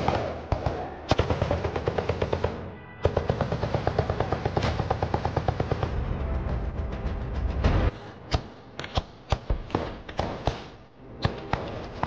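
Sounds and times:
automatic gunfire: 0:00.0 - 0:05.8.

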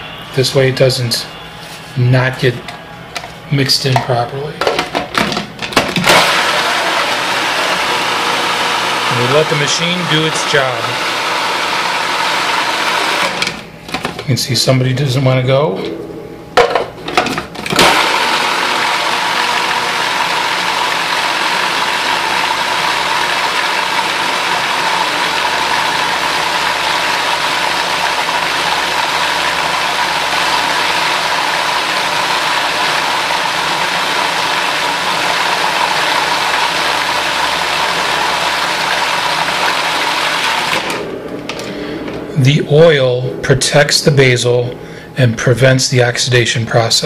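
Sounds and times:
food processor motor whining: 0:05.7 - 0:13.6, 0:17.6 - 0:41.7.

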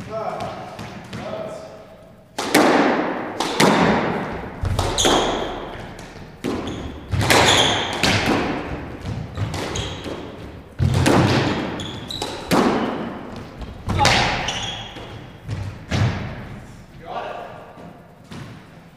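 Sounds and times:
racket striking squash ball: 0:00.0 - 0:01.6, 0:02.3 - 0:16.8, 0:17.8 - 0:18.9
ball smacking off walls: 0:02.4 - 0:16.5
sneakers squeaking on hardwood: 0:03.5 - 0:16.9.

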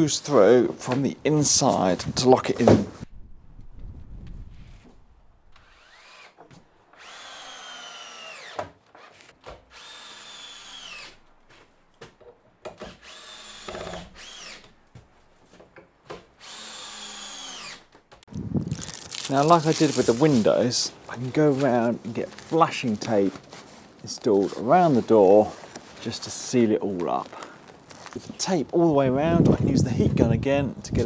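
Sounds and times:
cordless drill driving screws: 0:05.5 - 0:11.2, 0:12.8 - 0:14.7, 0:16.4 - 0:17.9.

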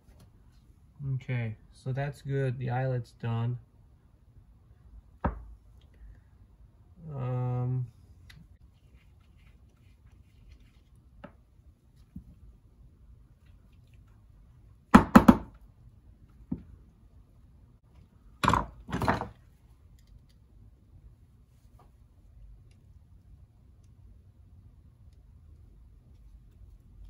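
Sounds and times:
tools knocked on workbench: 0:18.4 - 0:19.4.

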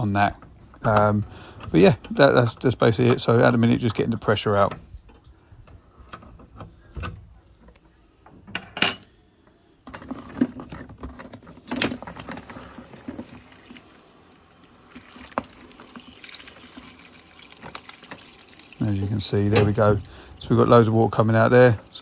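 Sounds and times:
water rushing into plastic bucket: 0:11.6 - 0:22.0.

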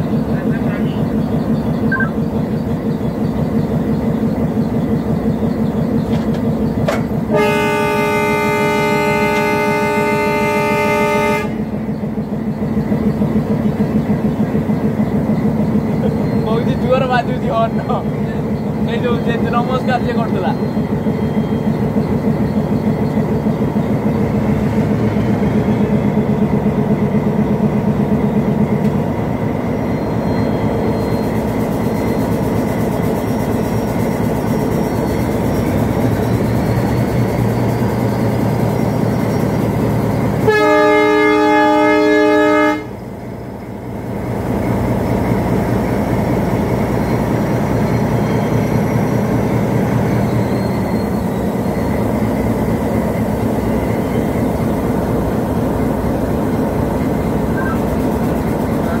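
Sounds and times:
diesel locomotive engine drone: 0:00.0 - 0:59.0
rail noise: 0:00.0 - 0:59.0
locomotive horn blast: 0:07.3 - 0:11.8, 0:40.4 - 0:43.1.

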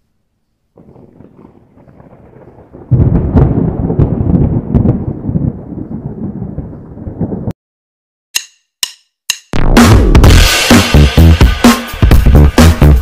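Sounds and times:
crackling low rumble: 0:00.0 - 0:07.6
thunder crack: 0:00.8 - 0:07.6, 0:09.7 - 0:12.4.

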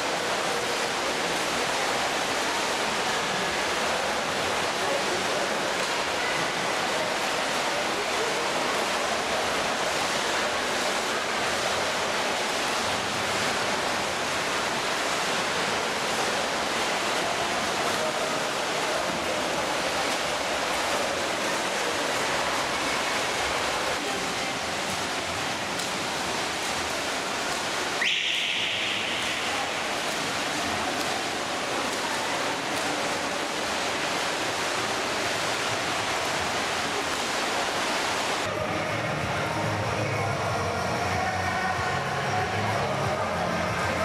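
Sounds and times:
swimmers splashing: 0:00.0 - 0:44.0.

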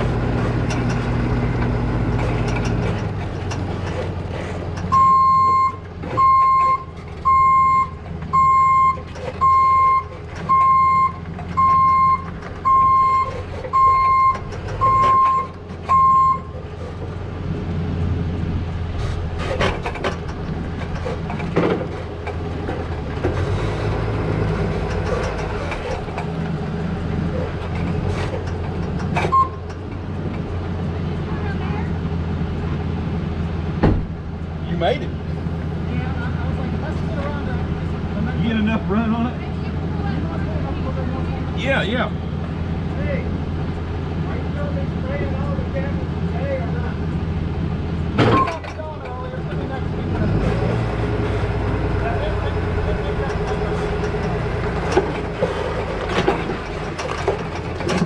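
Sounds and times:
engine running: 0:00.0 - 0:58.0
reverse alarm beeping: 0:04.9 - 0:16.5.

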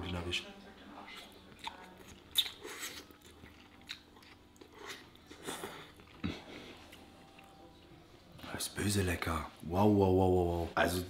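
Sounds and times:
chewing mouth noises: 0:01.0 - 0:07.8.

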